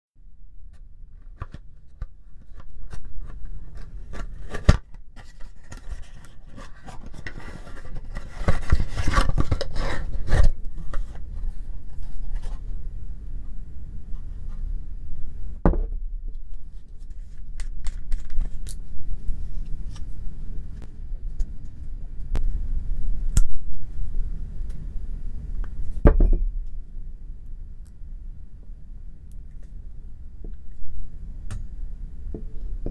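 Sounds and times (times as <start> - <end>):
cardboard carton rustling: 2.4 - 11.2.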